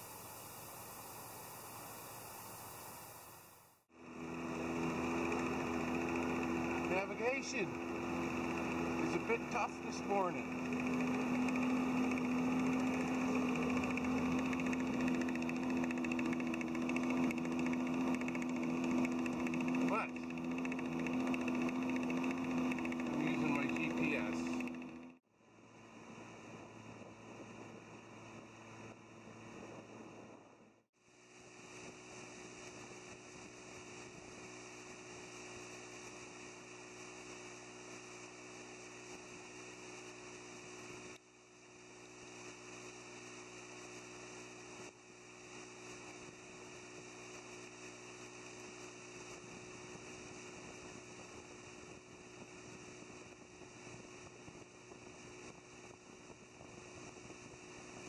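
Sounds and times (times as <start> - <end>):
boat motor humming: 3.9 - 30.6.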